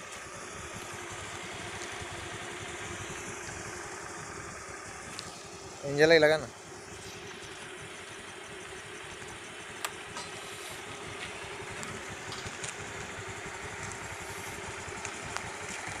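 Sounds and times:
scooter engine idling: 0.0s - 16.0s.

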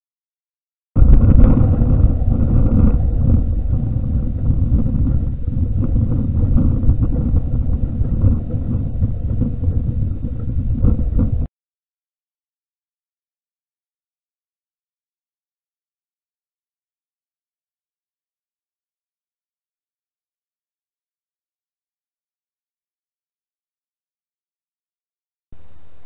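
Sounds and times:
wind buffeting microphone: 1.0s - 11.5s.

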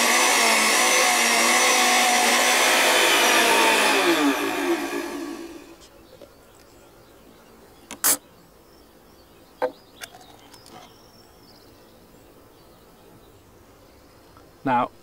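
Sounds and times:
blender motor running: 0.0s - 5.8s.

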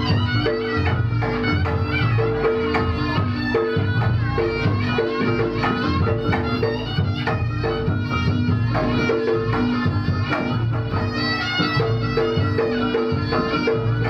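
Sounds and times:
drums and gongs beat: 0.0s - 14.0s
shawm melody: 0.0s - 14.0s.

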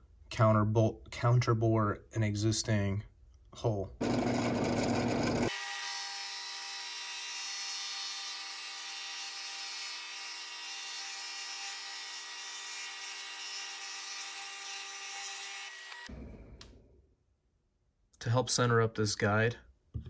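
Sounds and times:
drill press motor whine: 4.0s - 5.5s.

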